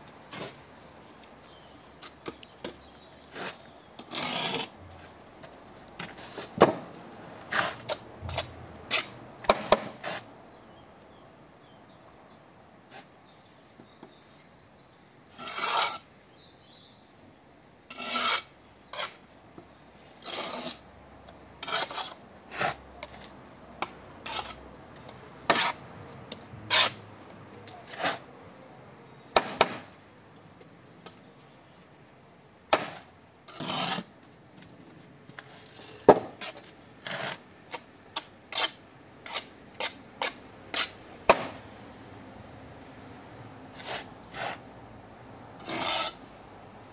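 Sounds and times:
trowel scraping mortar: 0:01.9 - 0:05.1, 0:07.5 - 0:10.3, 0:15.3 - 0:16.1, 0:17.9 - 0:19.3, 0:20.0 - 0:20.9, 0:21.6 - 0:27.0, 0:27.7 - 0:28.3, 0:32.7 - 0:34.1, 0:35.4 - 0:41.0, 0:43.7 - 0:44.7, 0:45.6 - 0:46.2.

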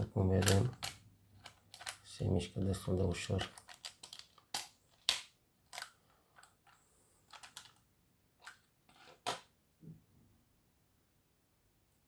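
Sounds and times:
plastic and metal parts clicking: 0:00.3 - 0:02.2, 0:02.8 - 0:07.8, 0:08.4 - 0:09.4.

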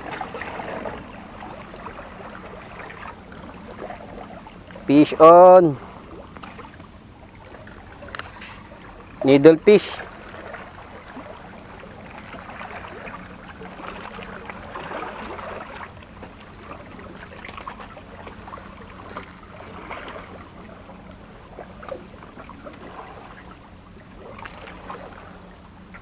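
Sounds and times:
faint low hum: 0:00.0 - 0:26.0
water lapping against boulders: 0:00.0 - 0:26.0.

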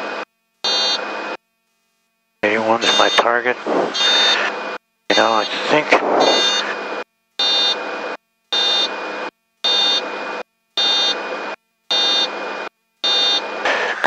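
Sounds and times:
cockpit warning beeps: 0:02.8 - 0:04.5, 0:06.2 - 0:06.7, 0:08.6 - 0:08.9.

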